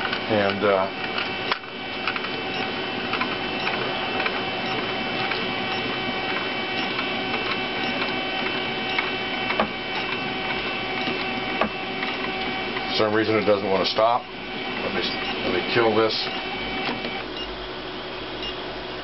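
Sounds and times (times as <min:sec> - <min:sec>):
stepper motors whining: 0:00.0 - 0:17.6.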